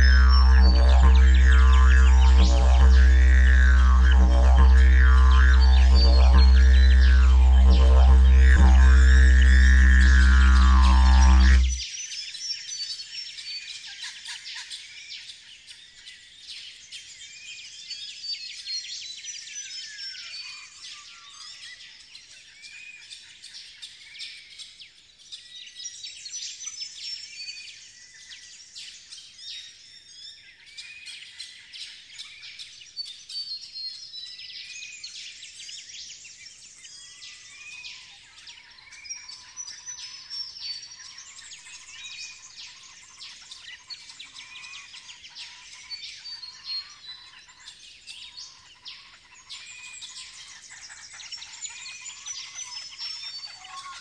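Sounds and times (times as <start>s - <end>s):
lower bird call: 0.0s - 11.8s
rising and falling bird call: 0.0s - 11.8s.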